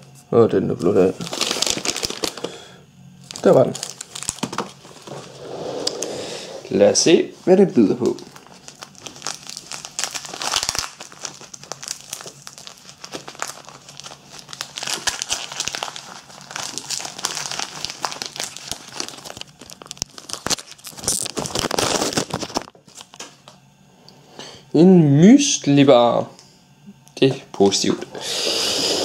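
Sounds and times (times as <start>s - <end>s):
gift wrapping crinkling and tearing: 0.9s - 6.1s, 7.4s - 23.3s.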